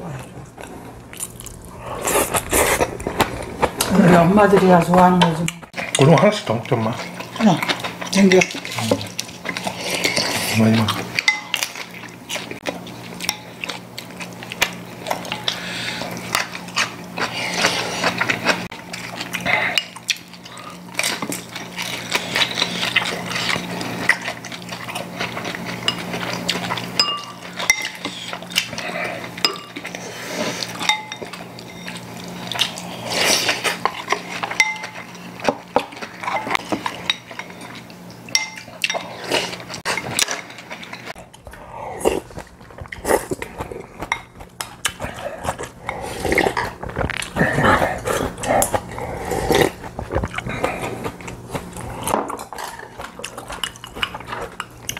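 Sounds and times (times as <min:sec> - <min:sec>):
steady low hum: 0:00.0 - 0:54.9
chopsticks clinking on ceramic bowls: 0:11.1 - 0:11.9, 0:25.8 - 0:28.2, 0:29.3 - 0:29.9, 0:30.8 - 0:32.0, 0:33.8 - 0:37.6, 0:38.3 - 0:39.1.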